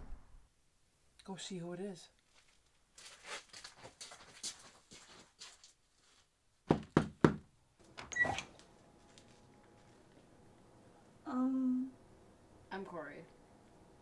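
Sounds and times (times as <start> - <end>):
light footsteps: 2.2 - 6.3, 8.5 - 10.3
knocks on a door: 6.7 - 7.5.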